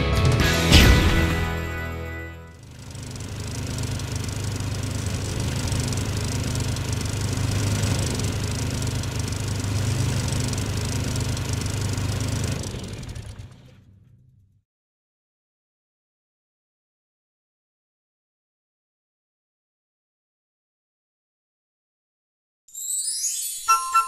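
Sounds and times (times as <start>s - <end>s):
snowmobile engine running: 2.6s - 13.7s.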